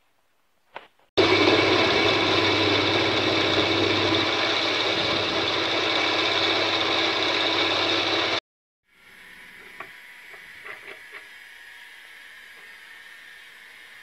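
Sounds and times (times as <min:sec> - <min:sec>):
motors humming: 0:01.2 - 0:08.4
grinding wheel hissing on steel: 0:01.2 - 0:14.0.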